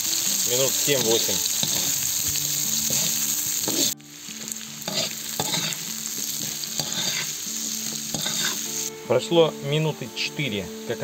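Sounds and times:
carrots sizzling in hot oil: 0.0s - 11.0s
metal spoon scraping: 4.9s - 5.8s, 6.4s - 7.3s, 8.1s - 8.6s.

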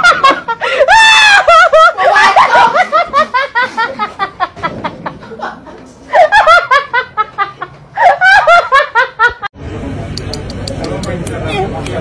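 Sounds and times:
person laughing hard: 0.0s - 9.5s.

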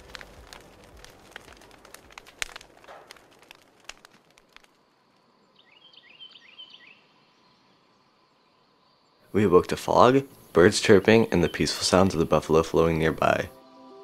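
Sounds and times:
campfire crackling and popping: 0.0s - 6.6s, 9.4s - 13.4s
bird chirping: 5.4s - 12.6s.

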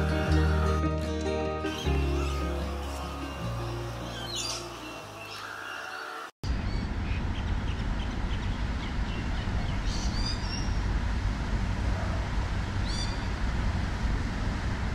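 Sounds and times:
birds chirping: 1.7s - 10.8s
bird falling calls: 4.0s - 6.3s.

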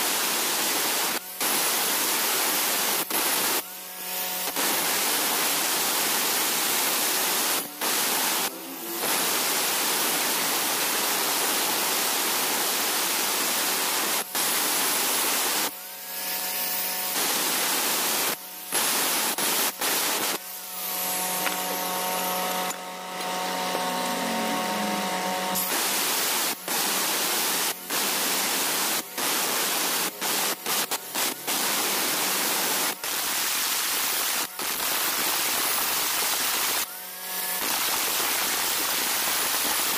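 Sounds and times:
grinder motor whine: 6.9s - 10.2s, 20.0s - 29.2s.

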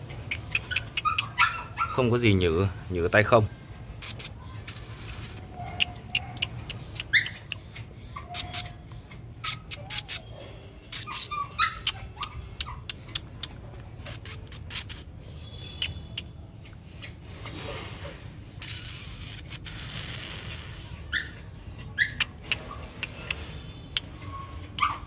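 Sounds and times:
puppy whining: 0.0s - 2.2s, 4.1s - 15.4s, 16.2s - 25.0s
sharp finger clicks and snaps: 0.3s - 1.4s, 4.0s - 7.6s, 10.9s - 15.0s, 22.2s - 23.4s.

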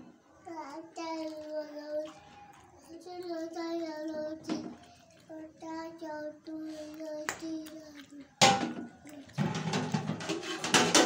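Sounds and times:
spoon scraping in steel pot: 9.4s - 11.0s.

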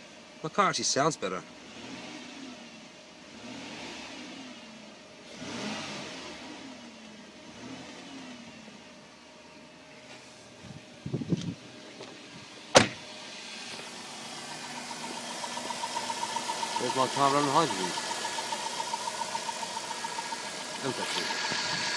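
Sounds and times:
car engine revving: 1.5s - 9.3s, 12.4s - 21.9s
car door shutting: 11.1s - 13.9s.

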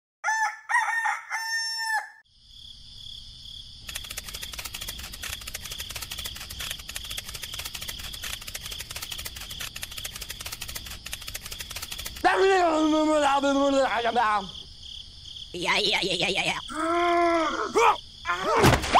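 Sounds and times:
rooster crowing: 0.2s - 2.2s
insects chirping trill: 1.4s - 18.9s.

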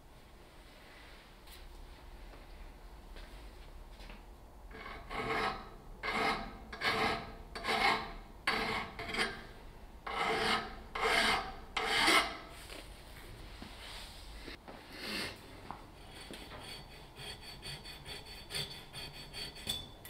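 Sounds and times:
file rasping on metal: 4.7s - 12.4s, 16.0s - 19.9s.

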